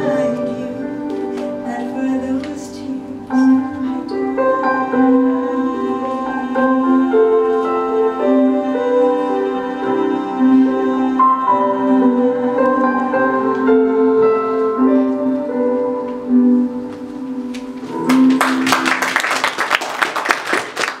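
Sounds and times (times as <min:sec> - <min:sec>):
piano chords: 0:00.0 - 0:21.0
audience applause: 0:18.0 - 0:21.0.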